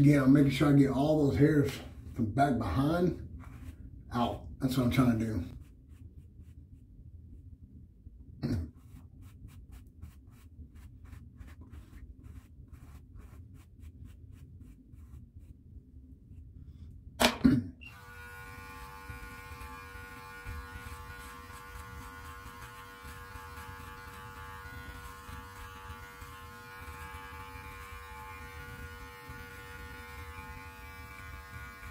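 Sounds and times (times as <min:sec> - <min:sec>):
brush rasping through beard: 0:02.8 - 0:06.8, 0:08.4 - 0:15.6, 0:18.1 - 0:31.9
electric clipper buzzing: 0:17.9 - 0:31.9.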